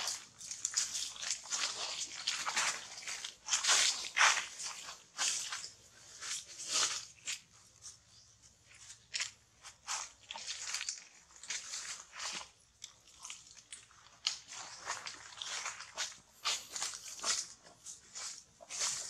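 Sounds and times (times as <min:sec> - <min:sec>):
dry leaves crunching underfoot: 0:00.0 - 0:19.0.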